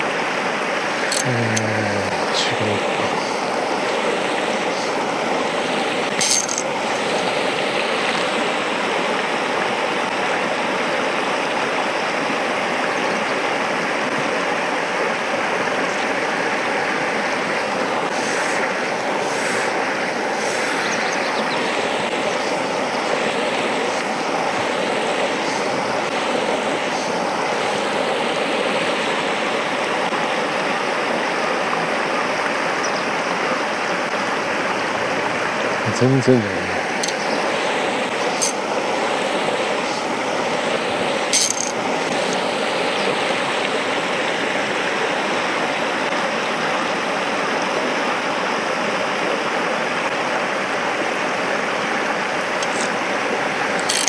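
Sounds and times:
stream rushing over stones: 0:00.0 - 0:54.0.

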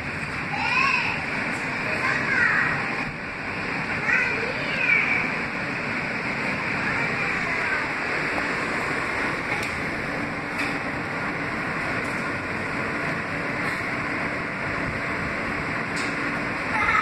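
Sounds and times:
subway car wheels on rails: 0:00.0 - 0:17.0.

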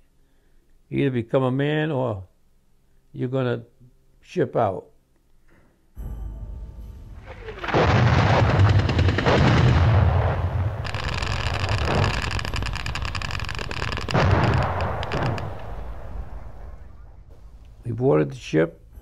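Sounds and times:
rumble of explosions: 0:07.2 - 0:18.9
rapid gunfire: 0:07.4 - 0:17.1.

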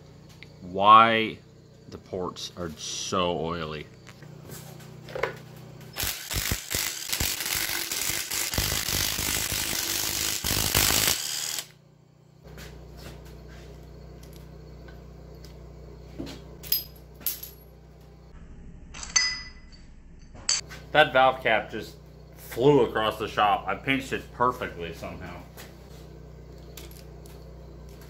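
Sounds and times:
low hum: 0:11.8 - 0:28.0.

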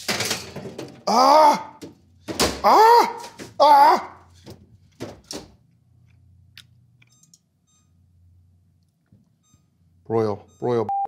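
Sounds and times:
short electronic beeps: 0:07.1 - 0:08.0, 0:09.4 - 0:09.8, 0:10.4 - 0:11.0.

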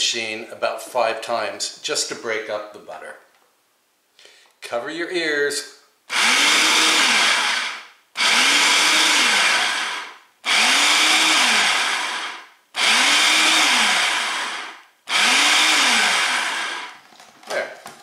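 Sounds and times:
food processor motor whirring: 0:06.1 - 0:17.0.

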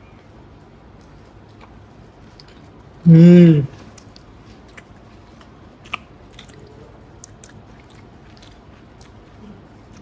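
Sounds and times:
person chewing food: 0:00.8 - 0:03.0, 0:03.6 - 0:10.0
small mouth clicks: 0:03.7 - 0:09.2.

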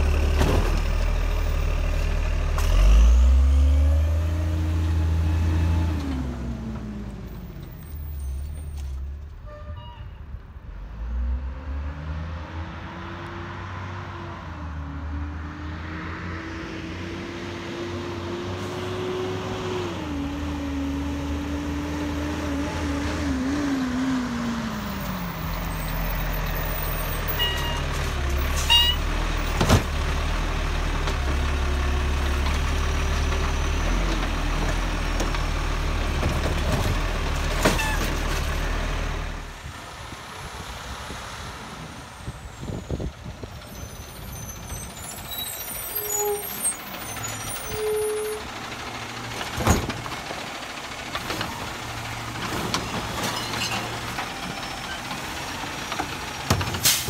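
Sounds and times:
garbage truck diesel engine: 0:00.0 - 0:09.5, 0:12.6 - 0:57.0.

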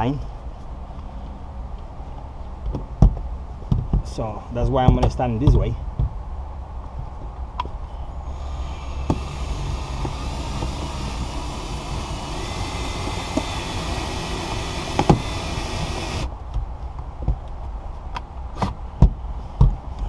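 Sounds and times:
cordless drill whining: 0:08.2 - 0:16.3
sharp knocks: 0:09.0 - 0:16.2.

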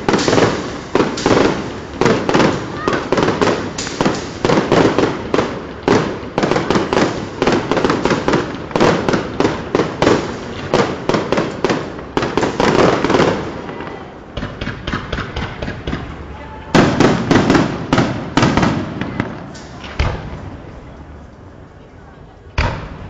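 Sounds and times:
fireworks bangs and cracks: 0:00.0 - 0:21.5, 0:22.5 - 0:23.0.

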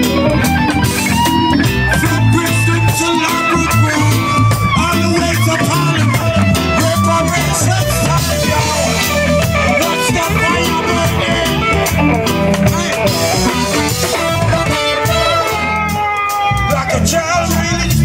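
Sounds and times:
drum kit: 0:00.0 - 0:18.0
electric guitar: 0:00.0 - 0:18.0
live band playing: 0:00.0 - 0:18.0.

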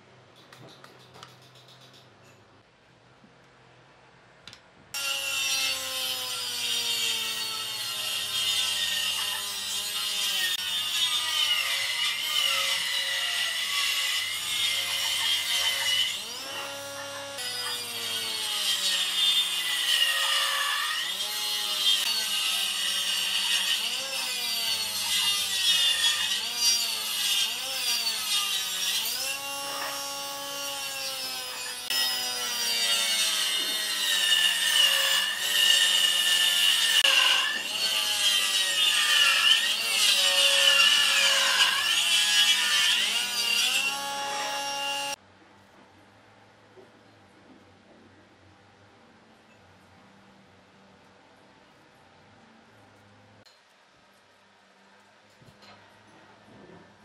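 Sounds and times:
jointer cutting wooden board: 0:14.6 - 0:41.8.

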